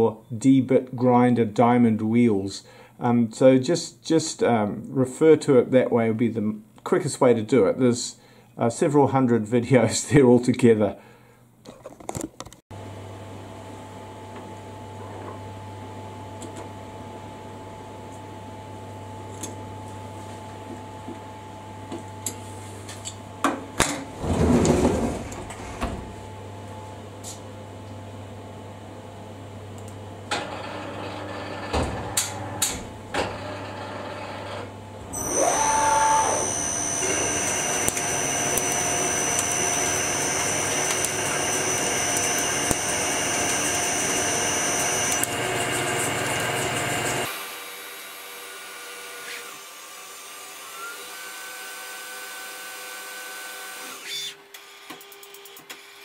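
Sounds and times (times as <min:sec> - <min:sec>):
enclosure door sliding shut: 0:23.9 - 0:26.2
lathe spindle whine: 0:33.3 - 0:47.6.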